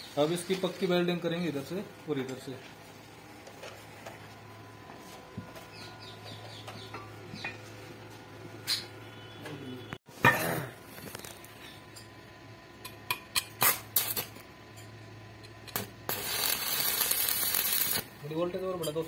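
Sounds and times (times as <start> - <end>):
welding arc crackles and snaps: 10.9 - 11.6, 12.8 - 14.6, 15.4 - 18.6.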